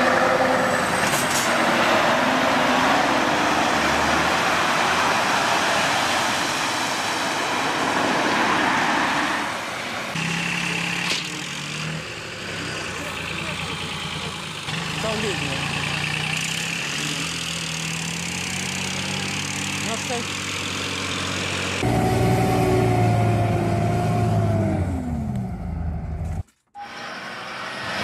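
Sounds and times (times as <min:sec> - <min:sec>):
road noise inside car: 0:00.0 - 0:28.0
car engine hum: 0:07.2 - 0:28.0.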